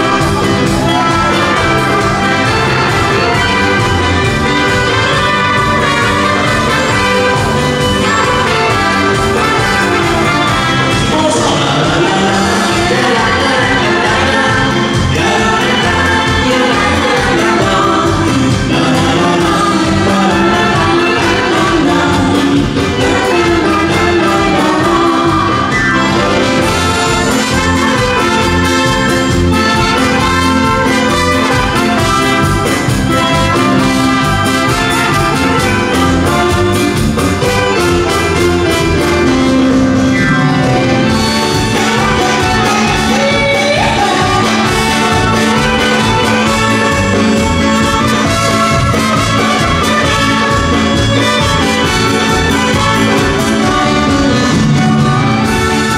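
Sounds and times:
dance band playing: 0.0s - 55.9s
saxophone: 0.0s - 55.9s
trumpet: 0.0s - 55.9s
women singing: 11.9s - 25.8s, 41.6s - 46.9s
clarinet: 19.4s - 55.9s.

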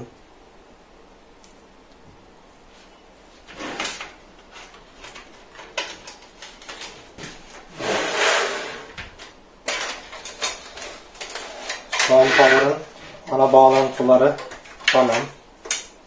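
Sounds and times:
cable rustling: 2.7s - 16.0s
computer case scraping on floor: 3.4s - 4.8s, 6.8s - 14.3s.

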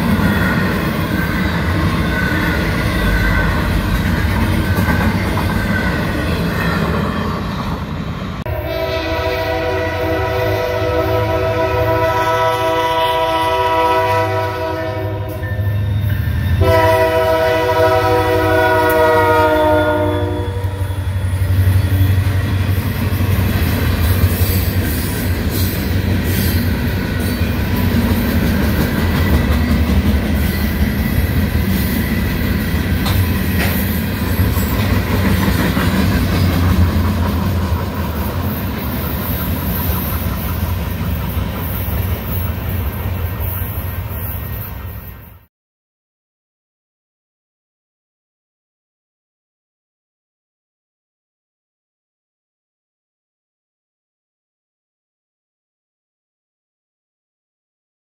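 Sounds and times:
train rumbling past: 0.0s - 45.5s
locomotive air horn blasts: 8.5s - 15.4s, 16.6s - 20.9s.

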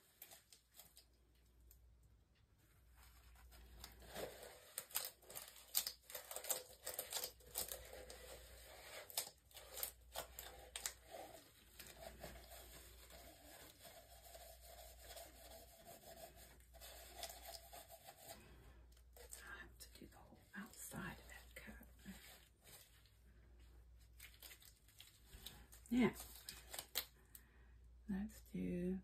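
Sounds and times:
scratchy rustling and scraping: 2.6s - 27.1s.

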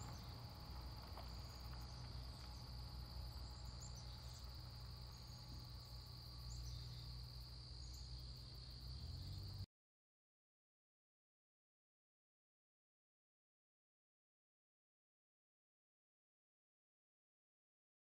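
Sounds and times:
high insect drone: 0.0s - 9.7s.

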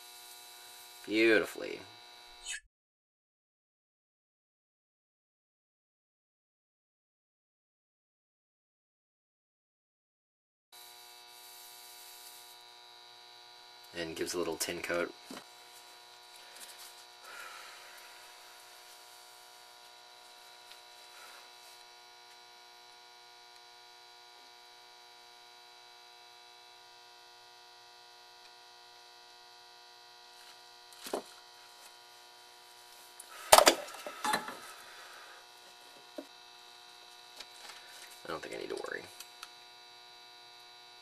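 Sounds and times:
electrical hum: 10.8s - 41.0s.

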